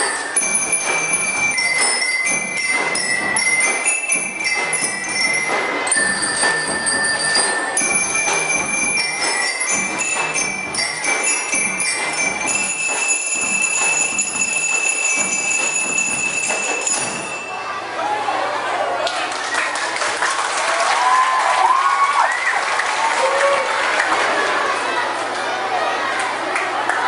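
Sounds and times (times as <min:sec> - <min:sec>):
drum beat: 0:00.0 - 0:17.4
bell lyres ringing melody: 0:00.0 - 0:17.9.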